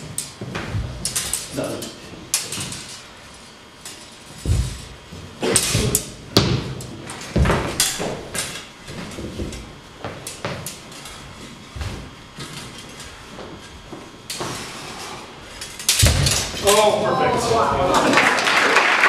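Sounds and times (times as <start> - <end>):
feet stamping on wooden floor: 4.4 - 12.6.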